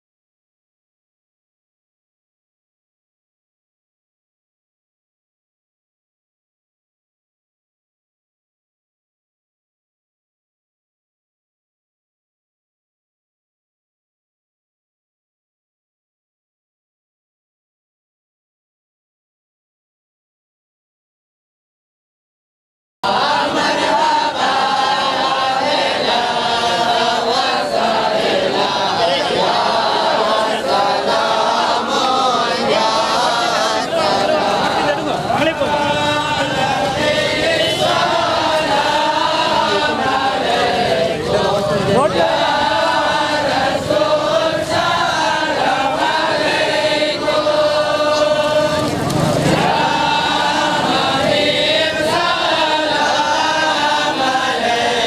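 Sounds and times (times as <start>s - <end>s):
men chanting in unison: 23.0s - 55.0s.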